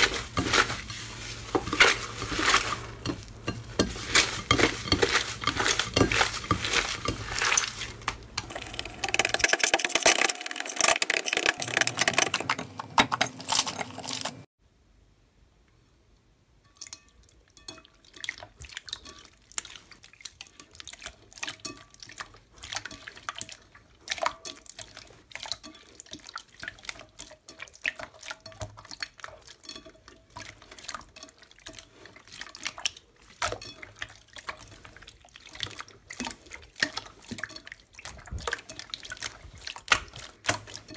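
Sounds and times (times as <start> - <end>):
hands kneading crackling slime: 0.0 - 8.4, 18.3 - 40.9
wet slime squelching: 0.0 - 9.4, 17.2 - 40.9.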